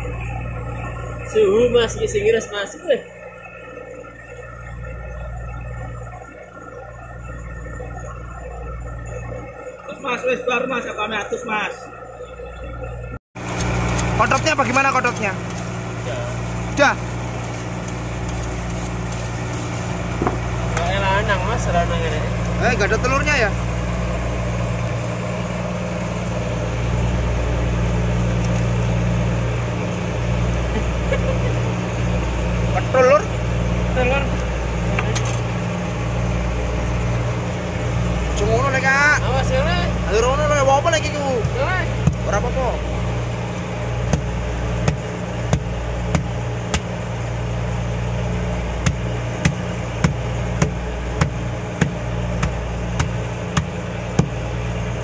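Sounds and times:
boat engine humming: 0.0 - 55.0
sharp knocks: 48.8 - 54.4.

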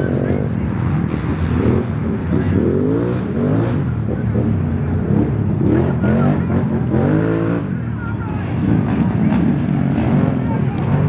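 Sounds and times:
voices calling out: 0.0 - 11.0.

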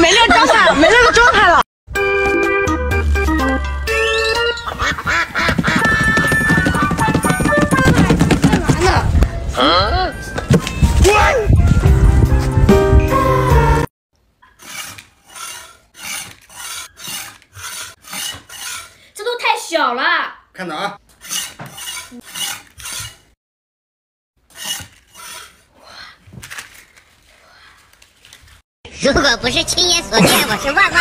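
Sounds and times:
scraping on wooden cutting board: 14.6 - 19.0, 21.2 - 23.3, 24.5 - 25.6.

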